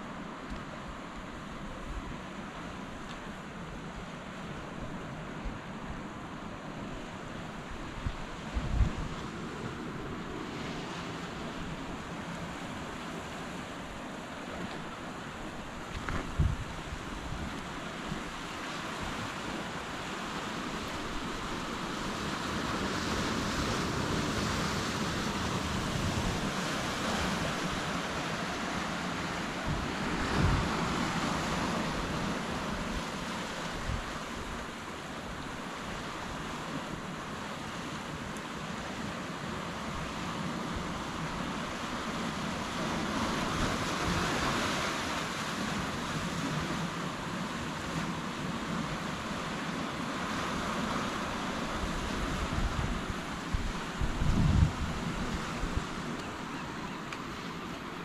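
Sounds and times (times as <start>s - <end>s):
ocean surf on shore: 0.0s - 58.0s
wind on microphone: 7.7s - 12.0s, 15.6s - 19.7s, 20.7s - 34.8s, 50.6s - 56.5s.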